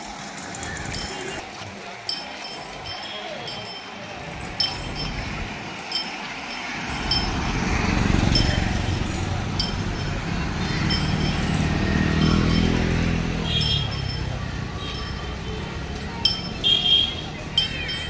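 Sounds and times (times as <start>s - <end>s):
motor traffic engine hum: 0.0s - 18.0s
bright metallic clinks: 2.1s - 18.0s.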